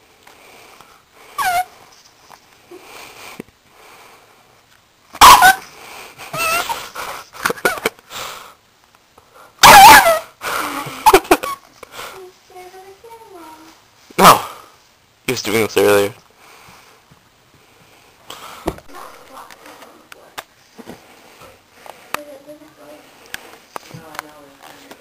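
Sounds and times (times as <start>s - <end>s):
dog whining: 1.4s - 1.7s, 5.2s - 5.7s, 9.6s - 10.3s
dog yipping: 1.4s - 1.7s, 5.2s - 5.6s, 9.6s - 10.3s
dog barking: 5.2s - 5.6s.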